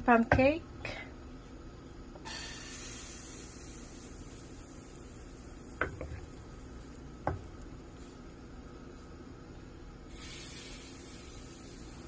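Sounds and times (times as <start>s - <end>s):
batter sizzling in frying pan: 2.2s - 9.2s, 10.0s - 12.0s.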